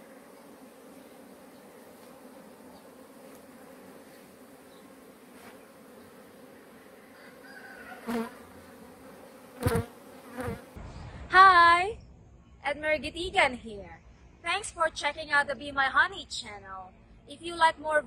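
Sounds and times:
bees flying close past: 0:00.0 - 0:10.8
honeybees buzzing: 0:00.0 - 0:10.8.

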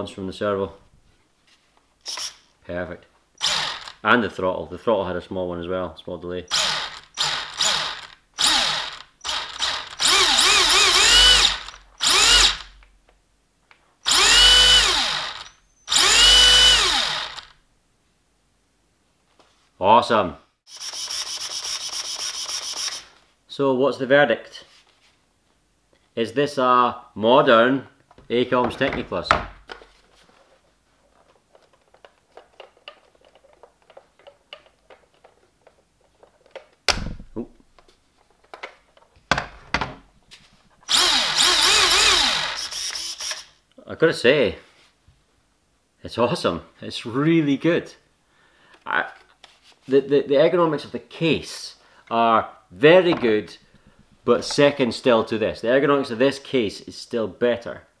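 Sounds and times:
electric motor whining bursts: 0:03.4 - 0:03.9, 0:06.5 - 0:12.7, 0:14.1 - 0:17.5, 0:40.9 - 0:43.5.

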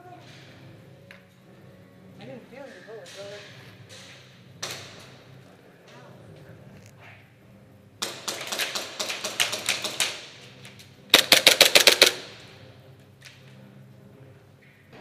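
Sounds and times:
airsoft guns firing: 0:08.0 - 0:12.5.

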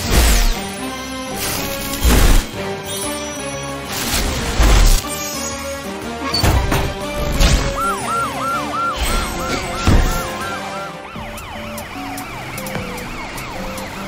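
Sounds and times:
background music: 0:00.0 - 0:14.0
cartoon siren yelping: 0:07.6 - 0:11.7.

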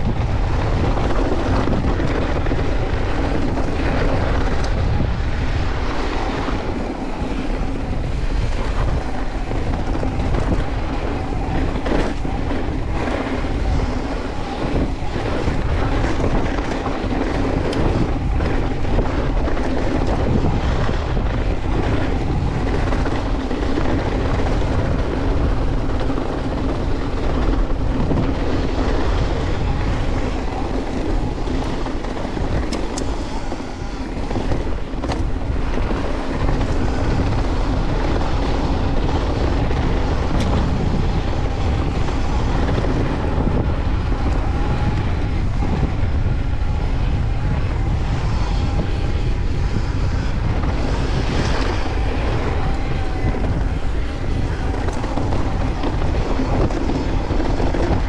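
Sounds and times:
bike tyres rumbling on dirt: 0:00.0 - 0:58.0
wind buffeting microphone: 0:00.0 - 0:58.0
sharp clicks from bike: 0:32.0 - 0:37.4, 0:39.8 - 0:40.9.

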